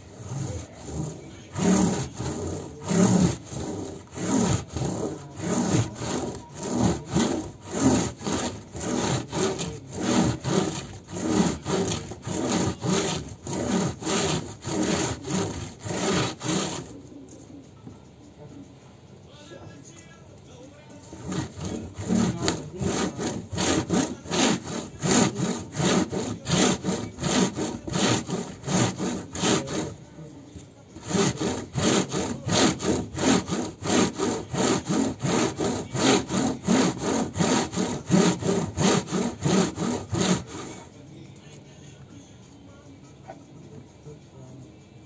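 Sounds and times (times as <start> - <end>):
bamboo mat scrubbing wet fibre: 0.0 - 17.0, 21.1 - 29.9, 31.0 - 40.7.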